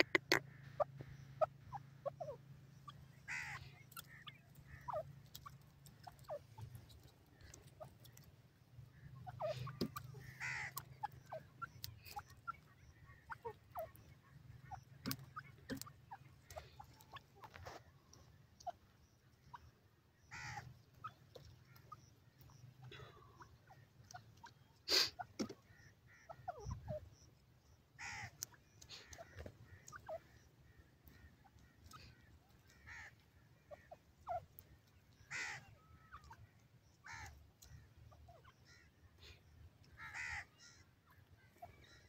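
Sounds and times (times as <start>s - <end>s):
francolin calls: 0.0s - 42.0s
faint ticks: 25.3s - 38.1s.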